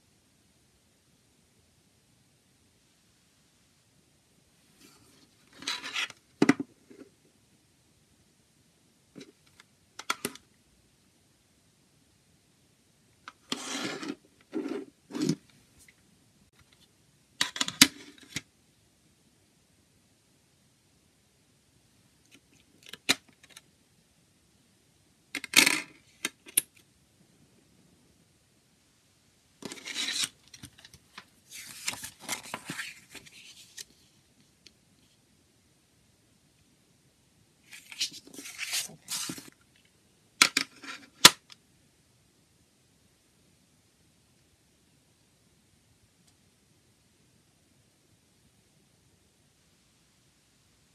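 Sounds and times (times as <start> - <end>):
paper booklet rustling on plastic: 29.6 - 34.1, 37.6 - 39.5.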